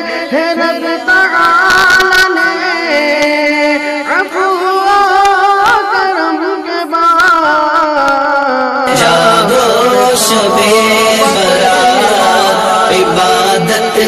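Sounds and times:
person singing ornamented melody: 8.8 - 14.0.

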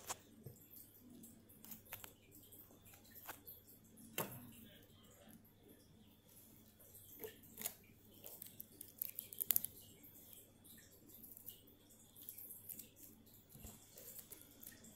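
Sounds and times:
putty squishing: 7.2 - 9.8.

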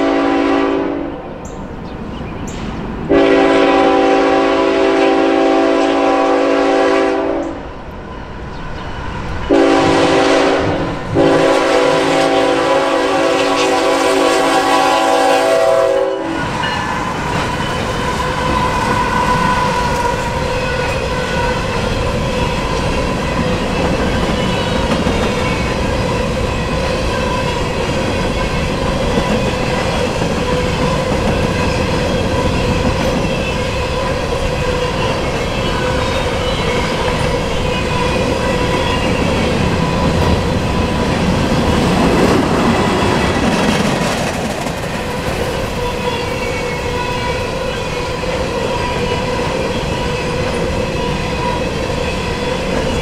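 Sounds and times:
locomotive horn chord: 0.0 - 1.2, 3.1 - 7.6, 9.5 - 16.6
train wheels clacking over rails: 16.4 - 53.0.

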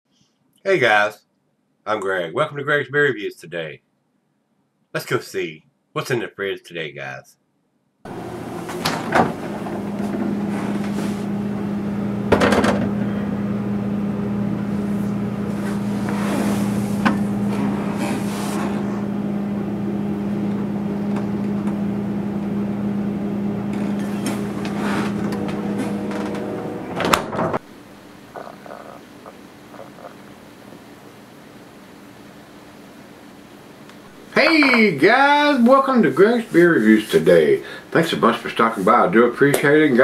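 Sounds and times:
refrigerator humming: 8.1 - 40.0.

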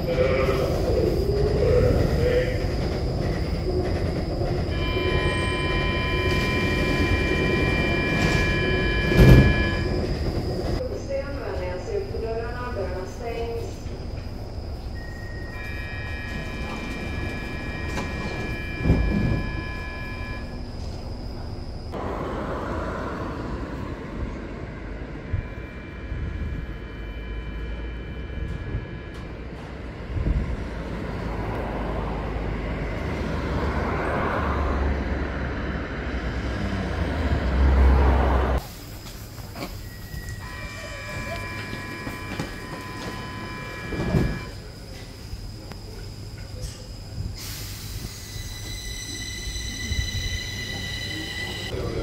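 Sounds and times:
train rumble: 0.0 - 52.0
two-tone door-closing signal: 3.8 - 10.8, 15.0 - 21.0, 25.2 - 30.3, 39.6 - 44.6
electronic door warning tone: 4.0 - 10.8, 15.0 - 20.7, 25.2 - 29.9, 39.8 - 44.6
train doors shutting knock: 4.6 - 10.8, 15.6 - 21.0, 39.1 - 44.6.

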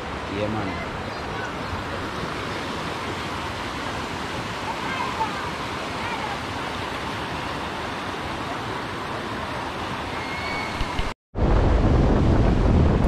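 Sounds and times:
river rapids rushing over rocks: 0.0 - 11.1
wind buffeting microphone: 10.7 - 13.0.

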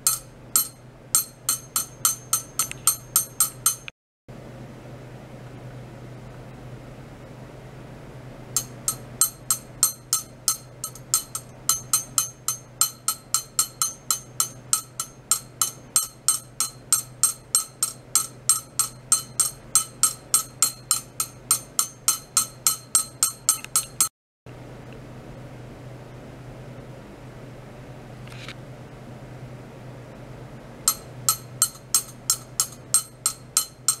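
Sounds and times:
sharp ringing clicks: 0.0 - 3.9.

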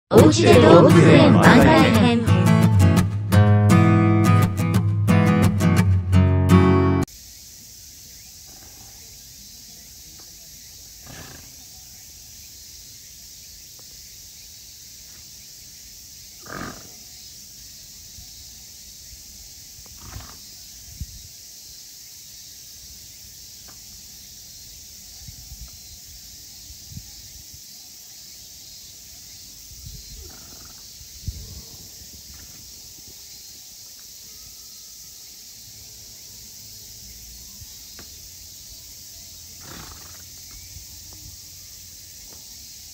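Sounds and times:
steady background hiss: 7.1 - 10.9
zebra snorting: 11.0 - 11.6, 16.4 - 17.0, 39.6 - 40.3.

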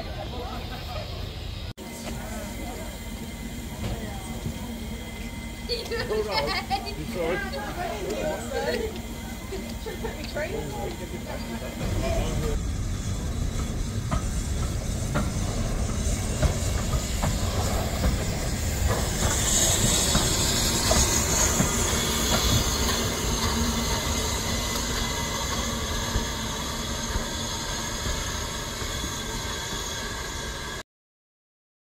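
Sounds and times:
loud hiss of steam: 0.0 - 30.8
steam train rumbling: 0.0 - 30.8
wheels clicking over rail joints: 3.8 - 28.3.

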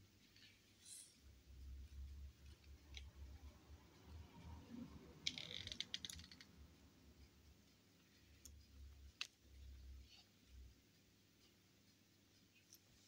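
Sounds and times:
small clicks and rustles: 5.3 - 6.6.

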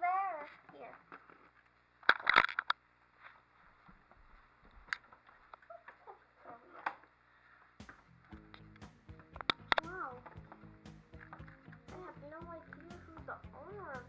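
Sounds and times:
plastic toys clicking and knocking: 2.0 - 2.8, 9.3 - 12.0.

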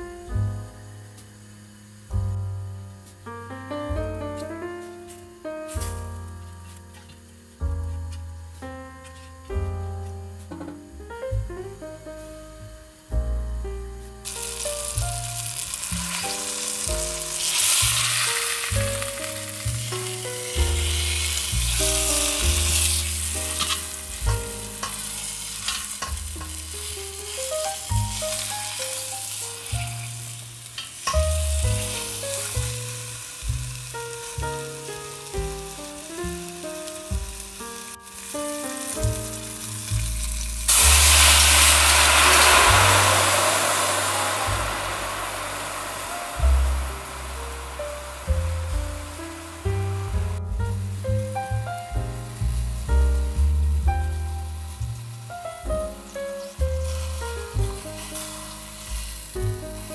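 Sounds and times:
meat sizzling in a pot: 0.0 - 10.6, 11.3 - 59.9
liquid poured into hot pot: 40.7 - 48.7.

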